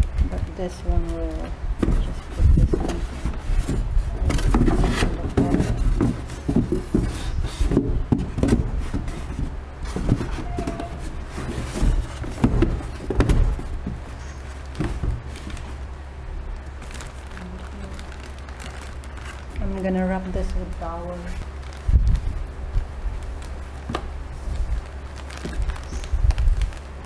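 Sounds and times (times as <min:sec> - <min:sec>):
low steady hum: 0:00.0 - 0:27.0
plastic bottles knocking on styrofoam: 0:01.8 - 0:14.0.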